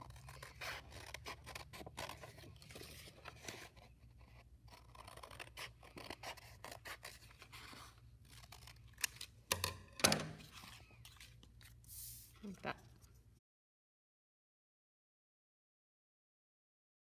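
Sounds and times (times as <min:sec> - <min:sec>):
scissors cutting paper: 0:00.0 - 0:09.4.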